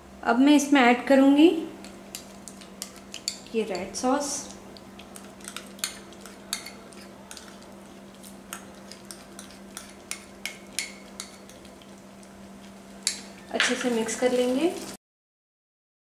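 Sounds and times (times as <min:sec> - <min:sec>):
steady low hum: 0:00.0 - 0:15.0
utensil clinking on bowl and pan: 0:01.8 - 0:11.9, 0:13.0 - 0:14.5
sauce being scraped: 0:01.8 - 0:14.8.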